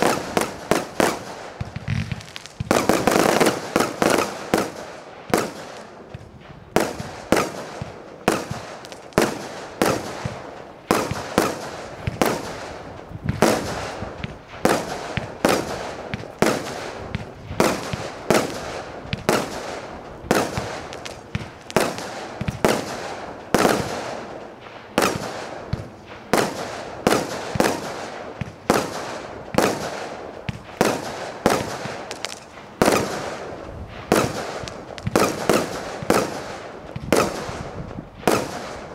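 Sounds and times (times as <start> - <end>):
firework cake bangs: 20.3 - 24.1.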